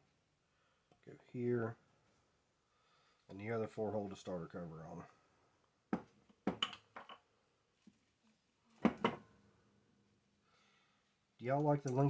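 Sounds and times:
metal screws and nuts clinking: 11.5 - 12.0.

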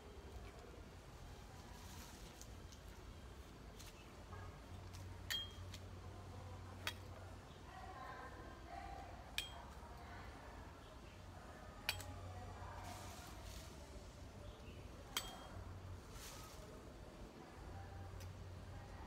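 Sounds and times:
knife blade clinking cutting stems: 5.3 - 5.8, 11.9 - 12.2, 15.1 - 15.6.

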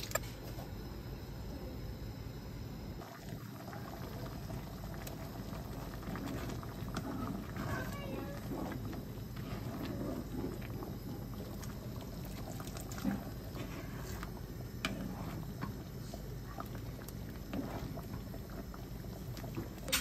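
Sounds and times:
sauce bubbling in a frying pan: 2.9 - 20.0
wooden spatula stirring: 4.2 - 20.0.

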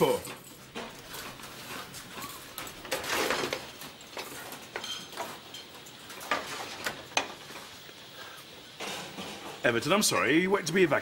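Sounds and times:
pans and utensils clattering: 0.0 - 7.8, 8.7 - 9.8.

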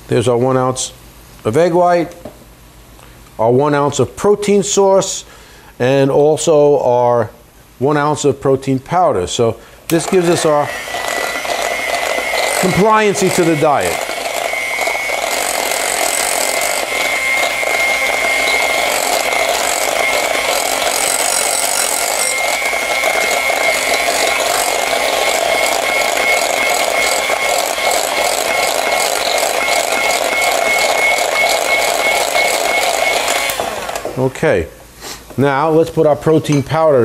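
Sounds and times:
electric hand mixer whirring: 9.9 - 34.2.

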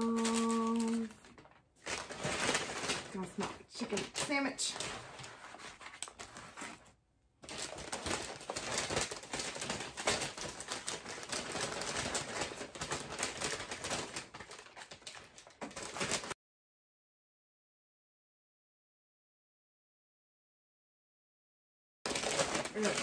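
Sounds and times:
paper bags rustling and crinkling: 0.0 - 16.4, 22.1 - 23.0.

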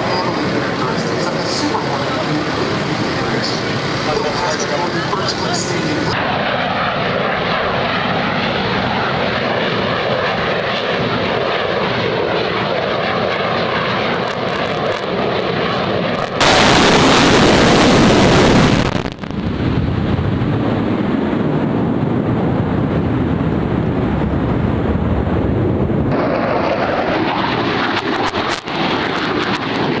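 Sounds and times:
jet aircraft engines: 0.0 - 30.0.

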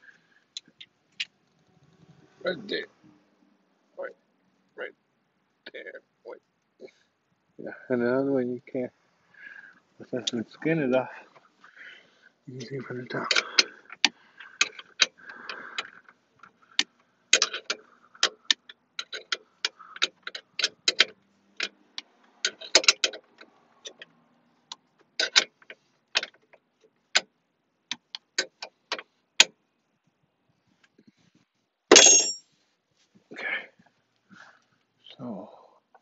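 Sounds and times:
metal clatter: 31.9 - 32.4.

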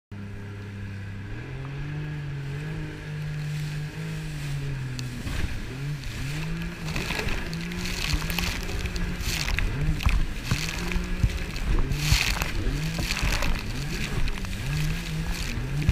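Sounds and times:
jet ski engine revving: 0.2 - 15.9
water spray splashing: 3.4 - 15.9.

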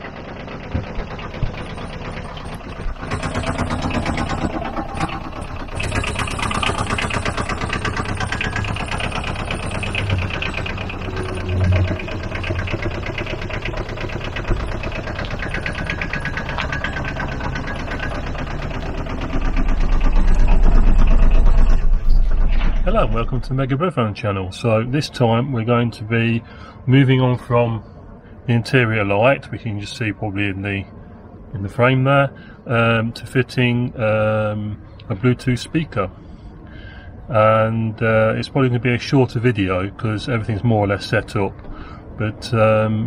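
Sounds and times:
deep rumble: 0.0 - 24.2
diesel engine idling: 0.0 - 42.9.

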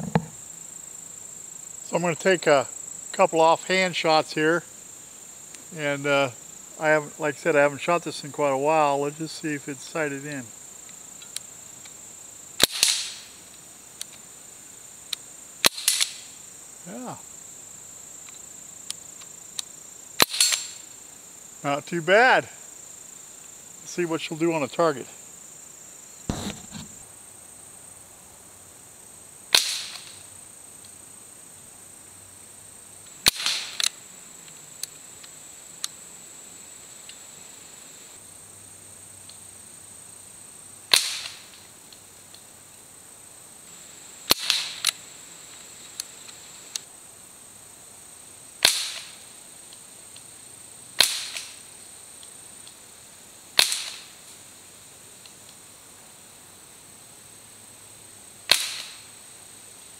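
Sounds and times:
pellet rifle shots: 12.6 - 13.2, 15.6 - 16.2, 20.2 - 20.8, 29.5 - 30.1, 33.2 - 33.9, 40.9 - 41.4, 44.3 - 44.9, 48.6 - 49.1, 51.0 - 51.6, 53.6 - 54.0, 58.5 - 59.0.

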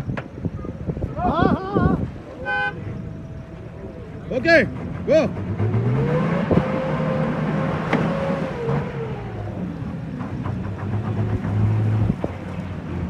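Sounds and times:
engine revving hard: 4.4 - 13.0.

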